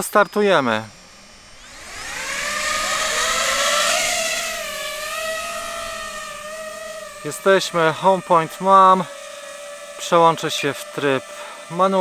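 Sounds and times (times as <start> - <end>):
drone propellers whining: 0.0 - 12.0.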